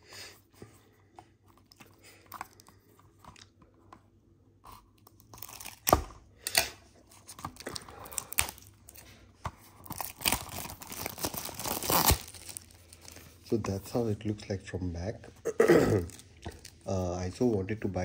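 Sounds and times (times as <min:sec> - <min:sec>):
plastic sleeve crinkling: 0:07.1 - 0:14.1.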